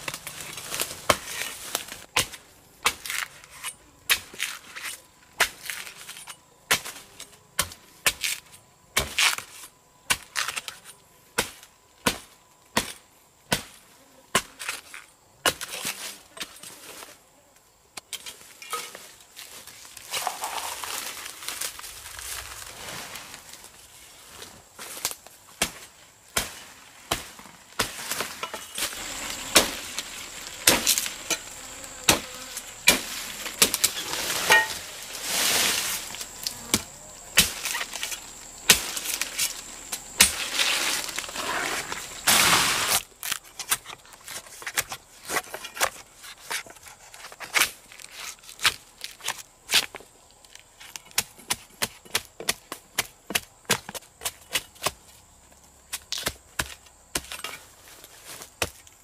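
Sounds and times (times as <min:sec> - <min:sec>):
rustling: 0:00.0 - 0:02.1, 0:18.2 - 0:50.0
blade chopping: 0:27.1 - 0:34.8.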